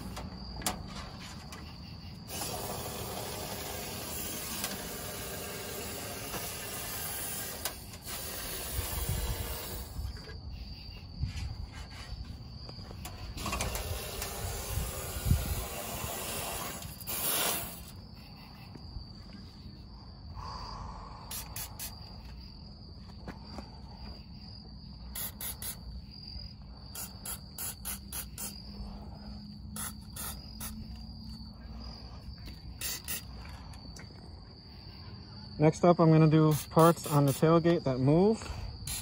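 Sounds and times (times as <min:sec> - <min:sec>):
crickets trilling: 0:00.0 - 0:39.0
aerosol spray hissing: 0:02.3 - 0:10.0, 0:14.0 - 0:17.9, 0:21.3 - 0:21.9, 0:25.2 - 0:25.8, 0:27.0 - 0:28.6, 0:29.8 - 0:30.8, 0:32.8 - 0:33.3, 0:36.5 - 0:37.6.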